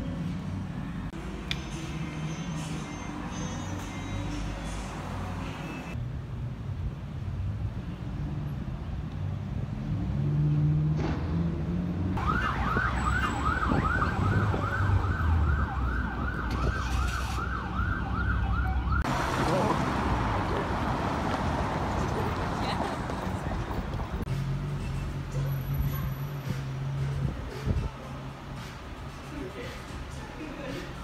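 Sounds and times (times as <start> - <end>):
road traffic rumble: 0.0 - 31.0
emergency siren yelping: 12.2 - 19.1.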